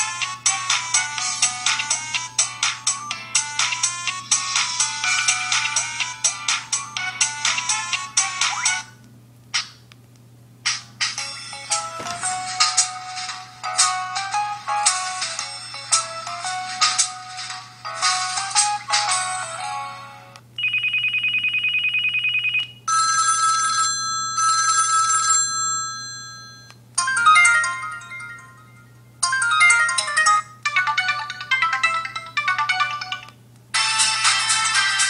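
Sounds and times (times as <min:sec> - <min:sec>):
trilling phone ring: 0:20.6 - 0:33.3
electronic ringtone melody: 0:20.6 - 0:35.0.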